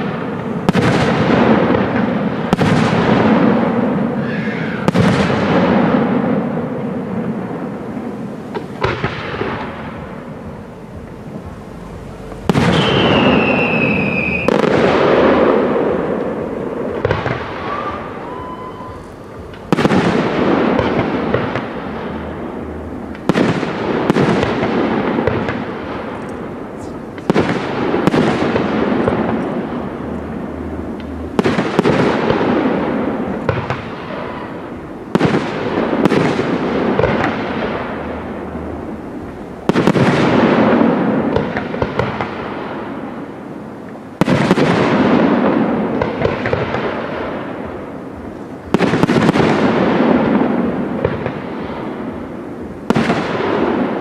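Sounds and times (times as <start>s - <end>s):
firework whistle: 0.0s - 6.7s, 8.6s - 22.4s
fireworks bursting with rumble: 0.0s - 54.0s.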